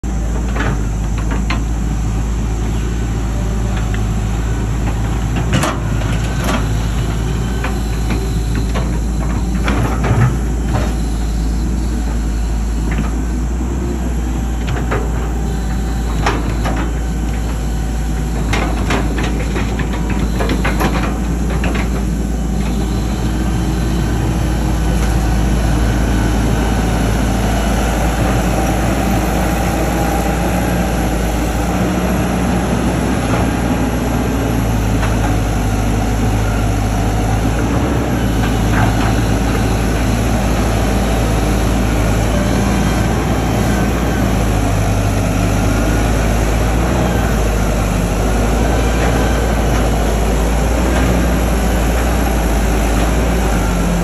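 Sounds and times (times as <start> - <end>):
excavator diesel engine running: 0.0 - 54.0
machine knocks and clanks: 16.1 - 23.9.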